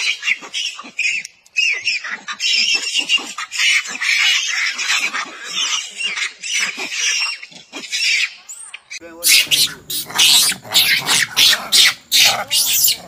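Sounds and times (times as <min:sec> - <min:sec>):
monkeys screaming: 0:00.0 - 0:13.0.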